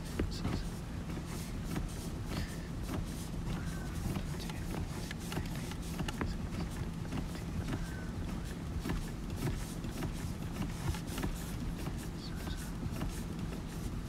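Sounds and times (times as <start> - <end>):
steady low hum: 0.0 - 14.0
clutch pedal clicks and knocks: 0.1 - 14.0.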